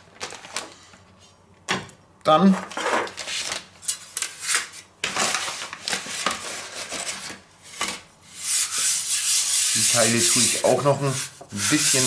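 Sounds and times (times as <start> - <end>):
metal rubbing and scraping: 8.4 - 12.0.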